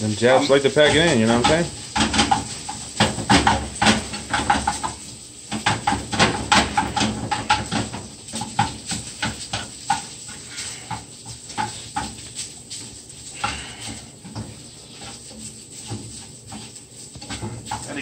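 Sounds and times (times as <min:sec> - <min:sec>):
rice sizzling in butter: 0:00.0 - 0:18.0
utensil scraping frying pan: 0:00.0 - 0:18.0.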